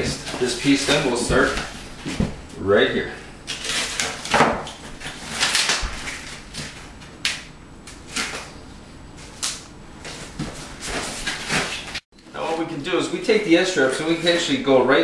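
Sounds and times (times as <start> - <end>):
adhesive strip tearing and rustling: 3.5 - 7.4.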